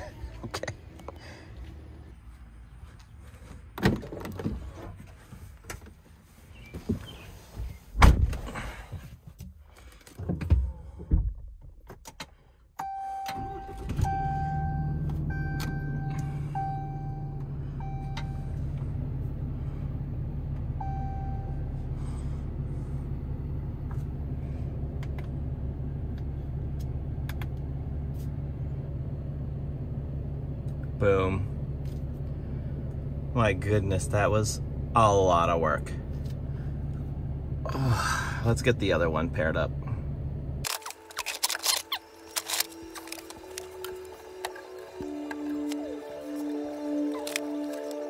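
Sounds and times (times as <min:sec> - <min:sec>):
dashboard warning chime beeping: 0:12.8 - 0:18.7, 0:20.8 - 0:21.9
truck engine idling: 0:13.4 - 0:48.0.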